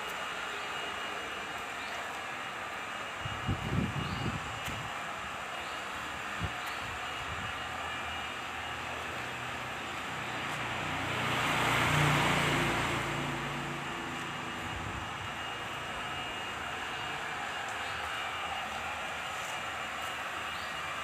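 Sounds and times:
vehicle passing: 0:10.0 - 0:16.8.

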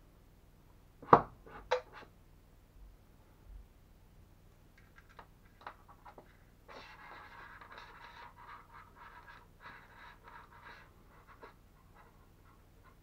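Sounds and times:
scraping and rubbing in hands: 0:04.8 - 0:13.0.

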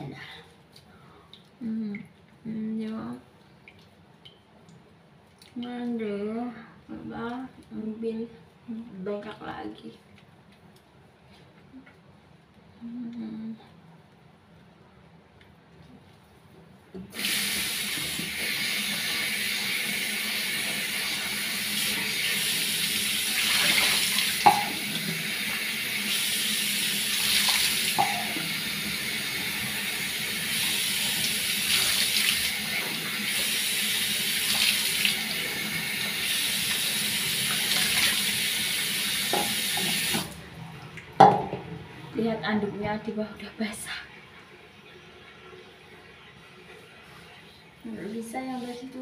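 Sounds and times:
tap running into sink: 0:23.5 - 0:25.0, 0:27.4 - 0:28.6, 0:39.2 - 0:40.4.

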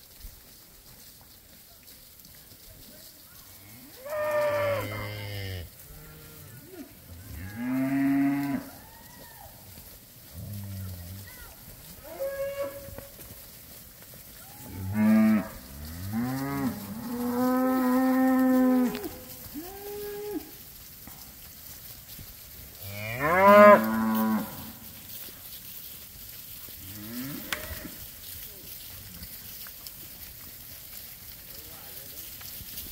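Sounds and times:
cattle mooing: 0:03.7 - 0:08.7, 0:14.7 - 0:20.5, 0:22.9 - 0:24.7.

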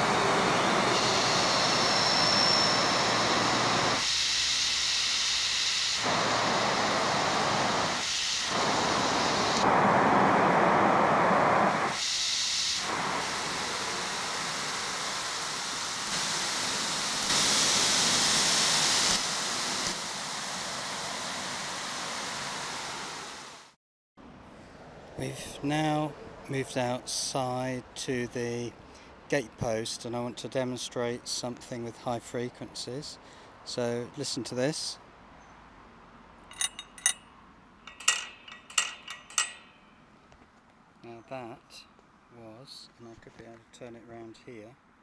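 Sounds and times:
amplified background hiss: 0:00.0 - 0:23.7.

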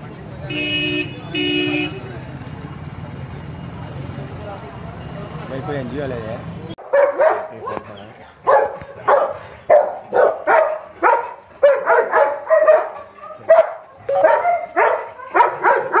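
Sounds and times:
dog barking: 0:06.8 - 0:16.0.

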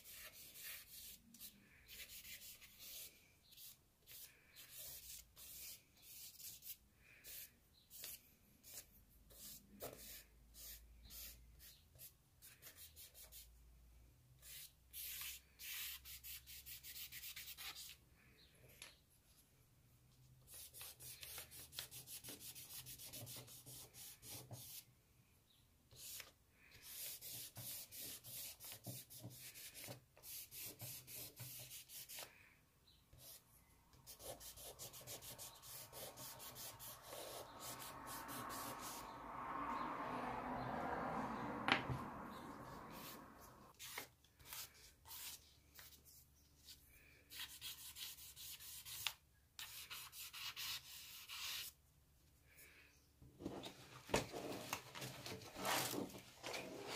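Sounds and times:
charcoal scratching on paper: 0:00.0 - 0:13.5, 0:14.4 - 0:18.0, 0:20.5 - 0:24.8, 0:25.9 - 0:32.3, 0:34.0 - 0:39.0, 0:43.8 - 0:45.9, 0:47.3 - 0:51.8.

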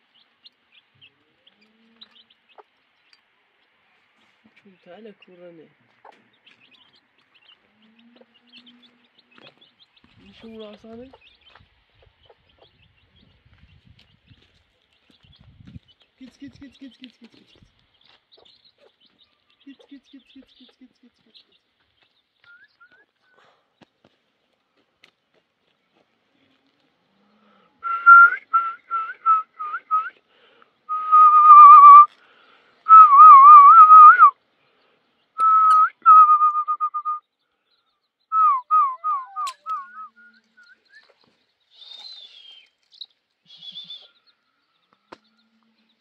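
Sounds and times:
person whistling: 0:27.8 - 0:30.2, 0:30.9 - 0:32.1, 0:32.9 - 0:34.3, 0:35.4 - 0:37.2, 0:38.3 - 0:40.9, 0:43.5 - 0:44.1.

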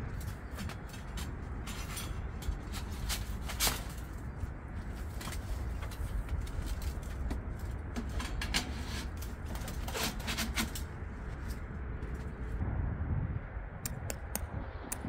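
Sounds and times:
metal pipes clicking and scraping: 0:00.0 - 0:11.7
steady low rumble: 0:00.0 - 0:15.0.

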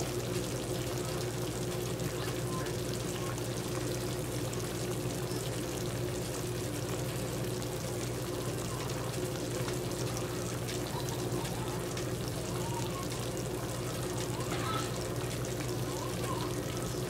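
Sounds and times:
sauce bubbling and sizzling in pan: 0:00.0 - 0:17.0.

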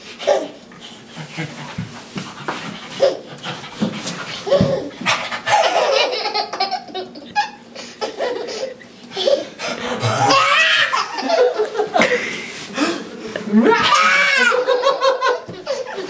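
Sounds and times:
baby laughing: 0:00.2 - 0:00.6, 0:02.8 - 0:12.2, 0:13.6 - 0:16.0.

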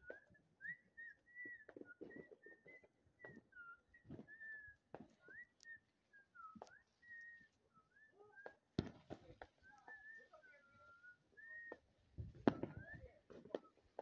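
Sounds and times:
gliding whistle-like notes: 0:00.0 - 0:14.0
soft thumps: 0:08.4 - 0:09.6, 0:12.2 - 0:13.7.

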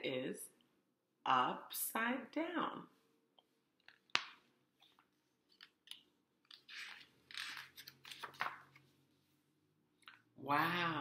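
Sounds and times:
book page turning: 0:03.9 - 0:09.0.

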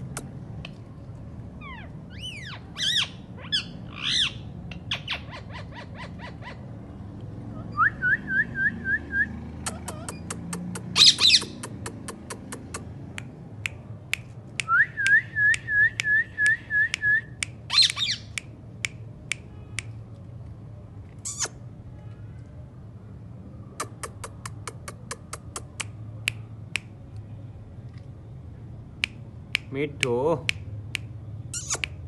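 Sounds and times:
parakeet screeching: 0:01.6 - 0:06.7, 0:11.0 - 0:11.6, 0:21.2 - 0:21.6, 0:31.5 - 0:31.9.

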